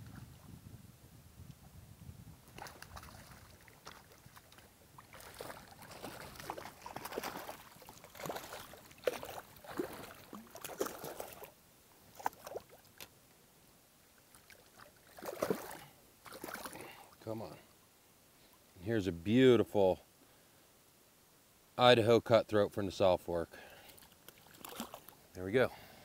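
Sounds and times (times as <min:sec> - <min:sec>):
moving water: 0:02.3 - 0:20.2, 0:21.8 - 0:26.0
fish splashing at water surface: 0:02.5 - 0:11.5, 0:14.3 - 0:17.0, 0:24.0 - 0:25.2.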